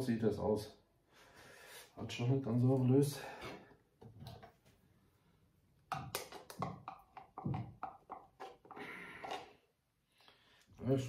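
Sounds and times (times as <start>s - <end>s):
spice container clicks and taps: 5.9s - 8.7s.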